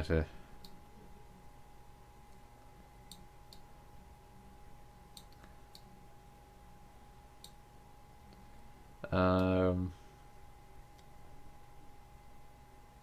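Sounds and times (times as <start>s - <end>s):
faint electrical hum: 0.0s - 13.0s
computer mouse clicks: 5.1s - 5.9s, 7.4s - 7.6s.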